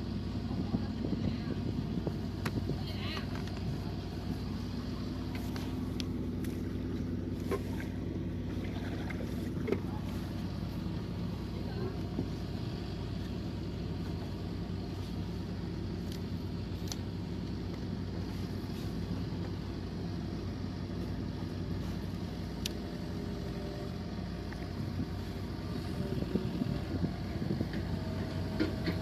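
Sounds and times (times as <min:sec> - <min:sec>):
motor humming: 0:00.0 - 0:29.0.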